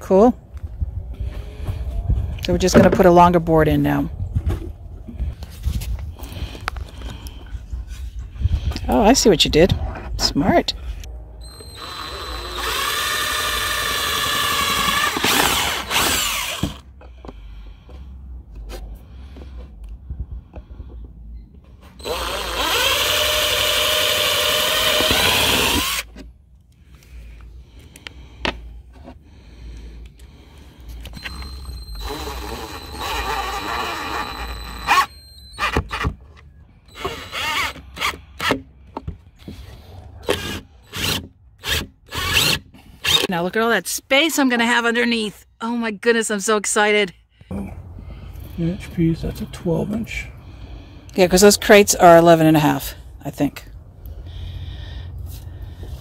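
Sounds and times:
impact driver motor whine: 11.4 - 16.8, 22.0 - 26.1, 31.0 - 36.1, 36.8 - 38.1.

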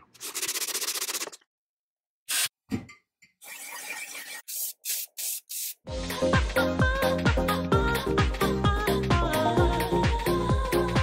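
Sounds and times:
aerosol spray paint hissing: 4.1 - 5.8.

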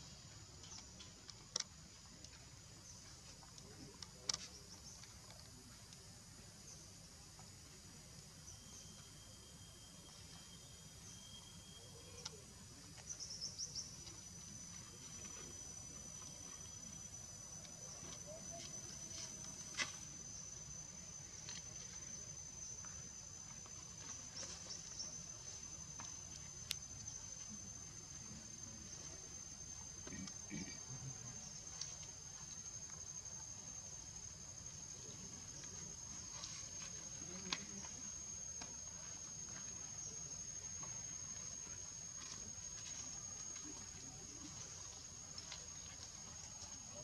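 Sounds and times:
high insect drone: 0.0 - 47.0.

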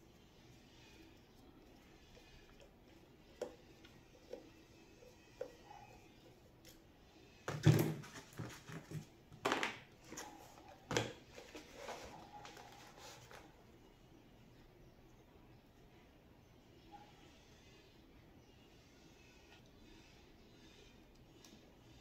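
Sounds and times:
knocks rattles and scrapes on bench: 7.4 - 13.5.

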